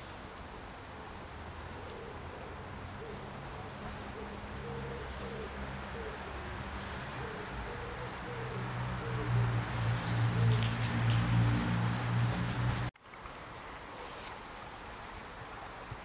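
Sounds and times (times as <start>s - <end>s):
pigeon cooing: 1.8s - 12.8s.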